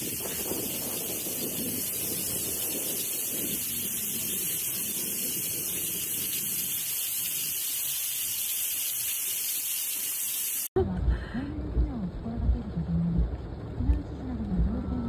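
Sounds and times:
wind gusts buffeting microphone: 0.0 - 7.4
wind-driven rain hissing: 0.0 - 10.7.

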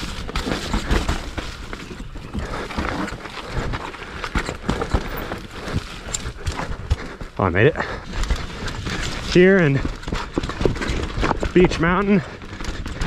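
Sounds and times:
bike frame and chain rattling: 0.0 - 7.0, 7.8 - 13.0
bike tyres squelching in mud: 0.0 - 13.0.

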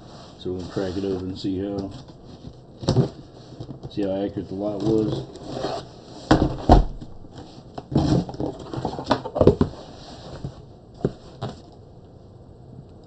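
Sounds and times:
cardboard scraping and rustling: 0.0 - 11.7
knocks on cardboard box: 6.3 - 7.1.

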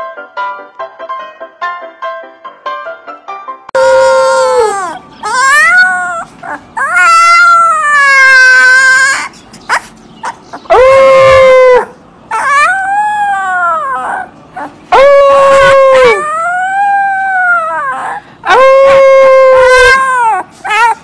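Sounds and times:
puppy howling: 3.8 - 21.0
puppy breathing: 9.1 - 10.7, 14.1 - 14.9.

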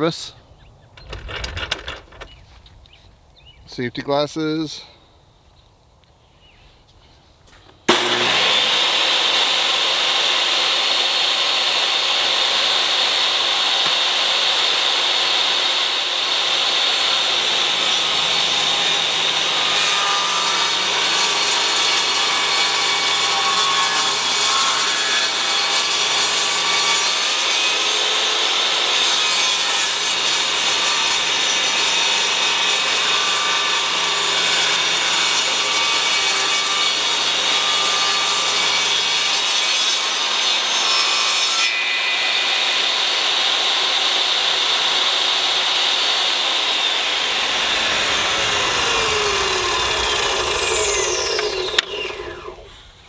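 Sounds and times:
table saw cutting wood: 7.9 - 52.9.

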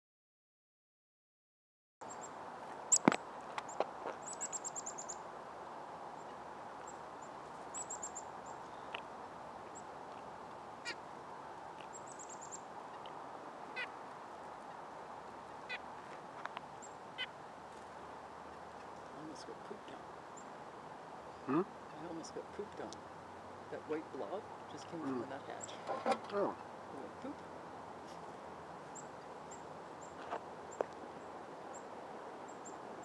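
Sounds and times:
steady background hiss: 2.0 - 33.0
nuthatch nasal calls: 3.7 - 5.2, 6.2 - 9.0, 13.7 - 13.9, 15.6 - 15.8.

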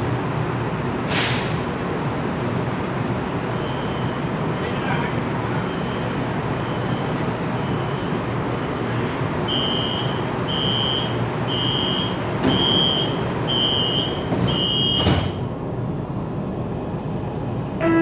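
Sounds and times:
door warning buzzer beeping: 9.5 - 15.2
sliding doors shutting with a thud: 12.4 - 13.0, 14.2 - 15.5.

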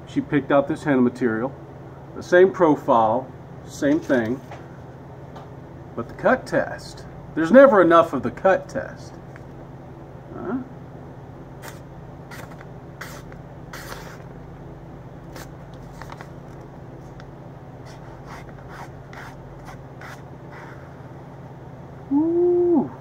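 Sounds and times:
steady low hum: 0.0 - 23.0
knife slicing paper: 12.4 - 14.2.

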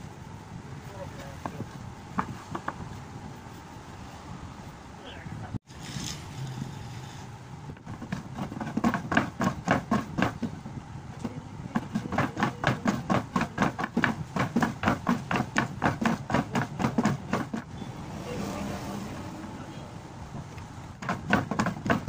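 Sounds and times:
thread rubbing and knocking: 5.7 - 17.7, 21.0 - 22.0.

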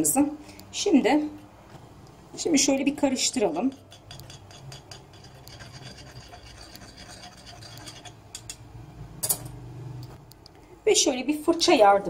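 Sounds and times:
spoon scraping against bowl: 2.7 - 8.6.

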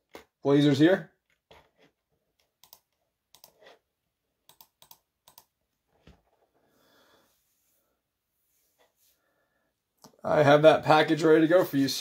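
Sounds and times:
soft rustle: 5.9 - 9.4.

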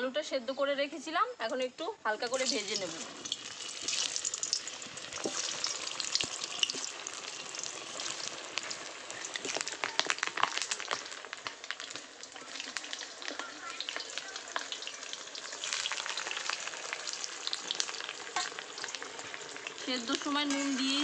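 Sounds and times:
potatoes frying in hot oil: 1.5 - 21.0
crackling pops: 2.4 - 21.0.

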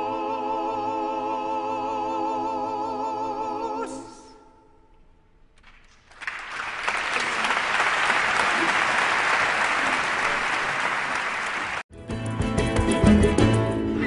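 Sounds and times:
choir and instrumental music: 0.0 - 5.0
audience applauding: 5.6 - 11.9.

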